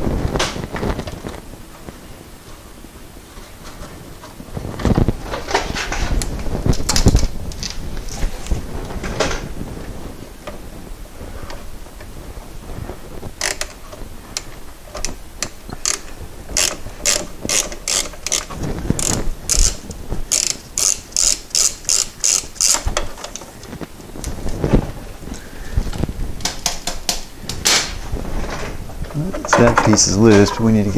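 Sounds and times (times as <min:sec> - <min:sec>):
ratchet wrench clicking: 0:13.4 - 0:13.7, 0:15.8 - 0:16.0, 0:16.6 - 0:22.9.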